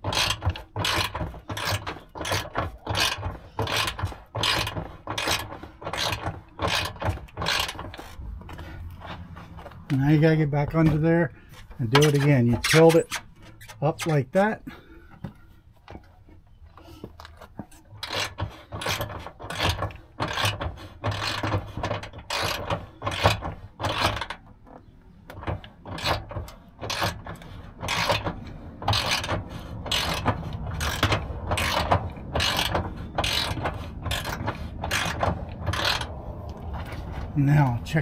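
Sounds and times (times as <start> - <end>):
winch ratcheting clicks: 0.0 - 10.0, 17.2 - 37.4.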